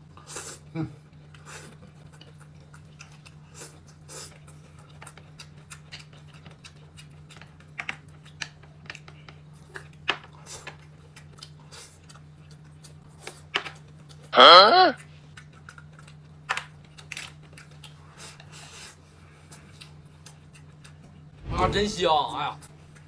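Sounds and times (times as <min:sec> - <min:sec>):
chewing and smacking: 0:00.1 - 0:14.3, 0:15.0 - 0:21.3
steady low hum: 0:19.0 - 0:23.0.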